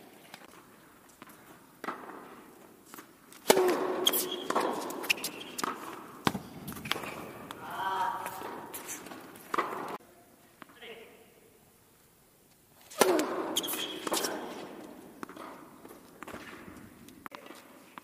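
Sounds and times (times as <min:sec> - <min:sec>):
racket hitting ball: 0:01.2 - 0:10.0, 0:12.8 - 0:17.7
tennis ball bouncing: 0:01.2 - 0:10.0, 0:12.9 - 0:18.0
player's voice: 0:07.6 - 0:08.5.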